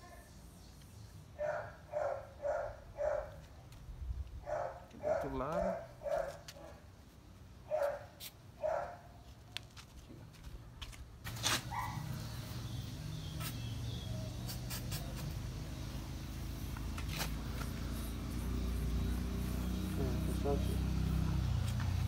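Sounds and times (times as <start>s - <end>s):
dog yelping: 11.7s - 12.1s
aerosol spray hissing: 12.2s - 20.7s.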